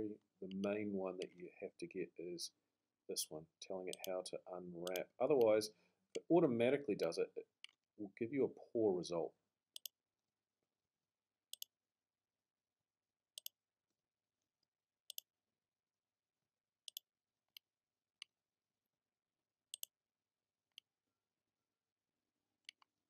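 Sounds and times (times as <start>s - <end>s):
computer mouse clicking: 9.8s - 10.0s, 16.9s - 17.6s, 19.7s - 19.9s.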